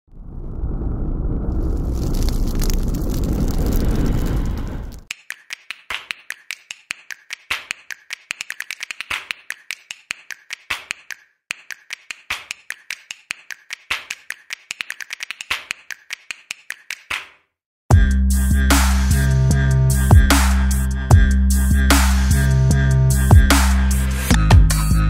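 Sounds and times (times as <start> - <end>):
sharp dry clicks and taps: 5.1 - 17.4.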